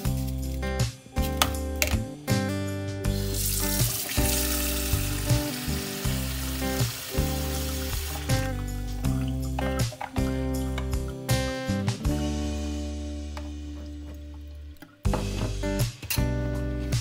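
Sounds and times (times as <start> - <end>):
guitar music: 0.0 - 17.0
tap water pouring into colander: 3.2 - 9.2.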